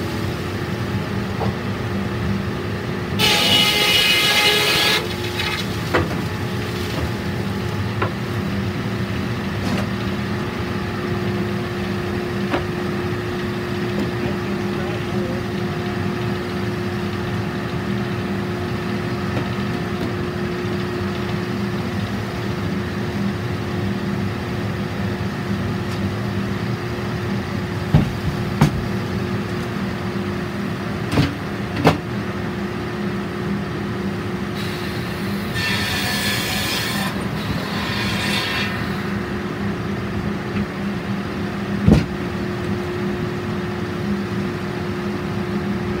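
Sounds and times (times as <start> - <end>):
sawmill machinery humming: 0.0 - 46.0
saw rasping through board: 3.2 - 5.1, 35.5 - 39.1.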